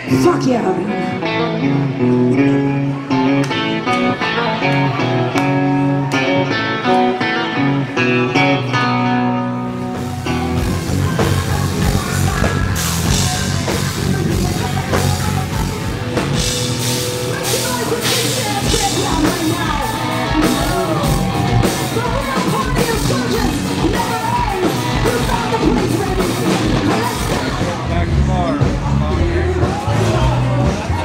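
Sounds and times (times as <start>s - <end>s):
electric guitars: 0.0s - 31.0s
person singing: 0.8s - 31.0s
drum kit beat: 9.8s - 31.0s.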